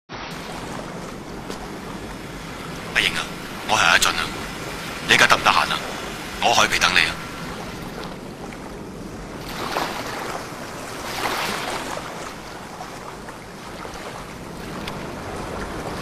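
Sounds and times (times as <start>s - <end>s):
sea waves washing ashore: 0.1s - 16.0s.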